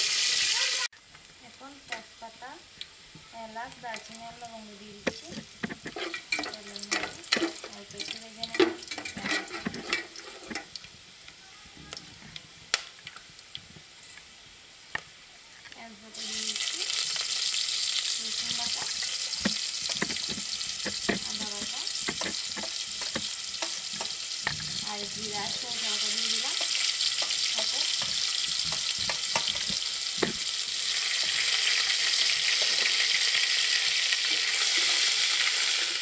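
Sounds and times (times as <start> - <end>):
loud steady sizzle: 0.0 - 36.0
onions frying in oil: 0.0 - 36.0
metal spatula scraping pot: 5.0 - 10.7, 18.4 - 31.5.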